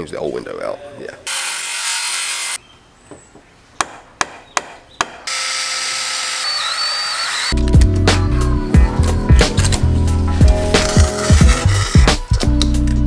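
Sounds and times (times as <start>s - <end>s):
power tool running: 1.3s - 2.6s, 5.3s - 7.6s, 10.5s - 12.3s
cordless drill driving screw: 5.3s - 7.6s, 10.8s - 12.4s.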